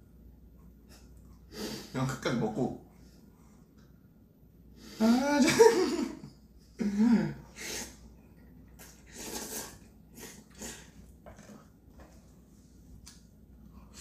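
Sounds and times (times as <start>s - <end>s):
noodles being slurped: 8.8s - 11.6s.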